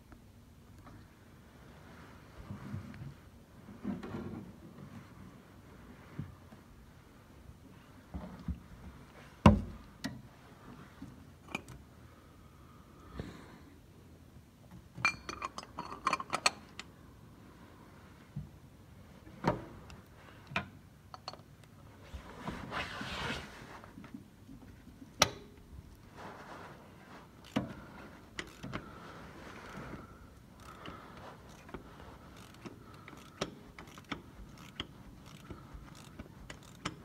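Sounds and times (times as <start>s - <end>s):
shuffling noise: 21.9s - 24.2s, 26.0s - 30.3s.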